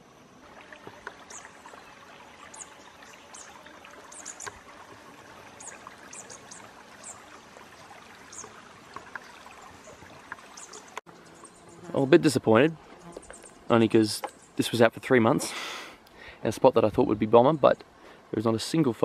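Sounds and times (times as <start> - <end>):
trickling water: 0.4 - 11.6.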